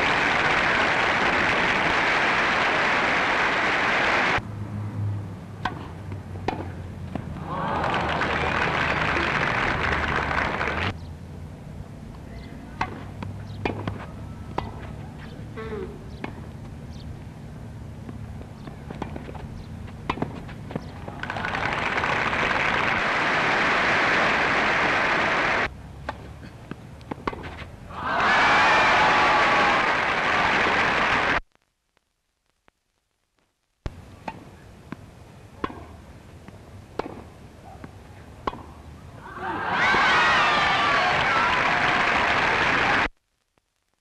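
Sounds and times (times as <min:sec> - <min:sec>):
crowd applause: 0:00.0 - 0:04.4, 0:07.4 - 0:10.9, 0:21.1 - 0:25.7, 0:27.9 - 0:31.4, 0:39.2 - 0:43.1
film soundtrack hiss: 0:00.0 - 0:04.5, 0:14.1 - 0:44.0
tennis ball struck: 0:05.6 - 0:07.4, 0:12.8 - 0:15.0, 0:18.0 - 0:21.1, 0:26.0 - 0:27.6, 0:35.6 - 0:38.8.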